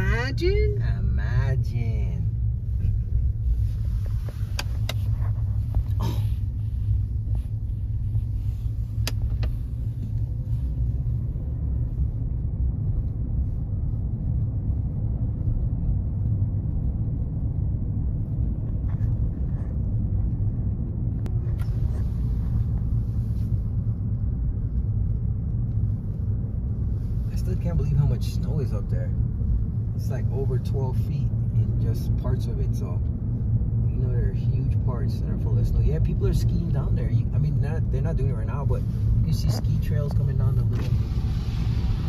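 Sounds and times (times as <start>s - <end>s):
car engine and road noise: 0.0s - 42.0s.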